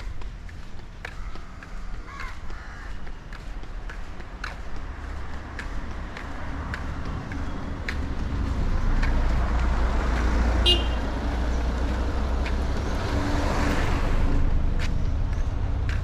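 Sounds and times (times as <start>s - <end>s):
faint footstep ticks: 0.0s - 12.9s, 14.4s - 16.0s
vehicle engine rumble passing: 4.3s - 16.0s.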